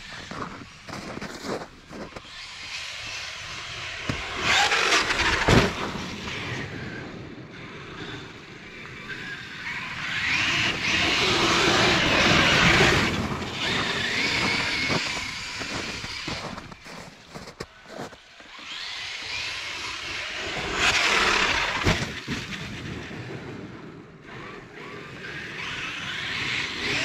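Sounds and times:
electric motor whining: 0.0 - 22.3, 24.3 - 27.0
tyres rushing in snow: 0.0 - 23.4.

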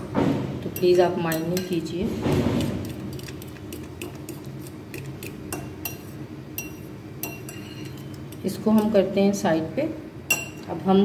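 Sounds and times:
fork clinking against glass bowl: 4.0 - 8.9, 10.3 - 10.7.

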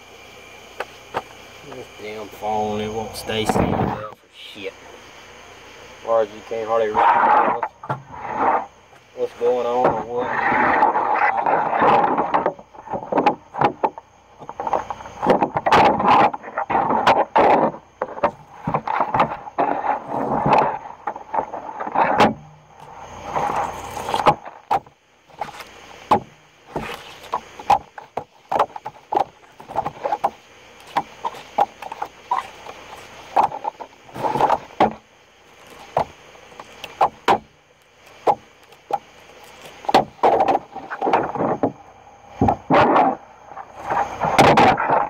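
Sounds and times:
fish skin rasping: 22.8 - 24.7, 25.3 - 41.3.

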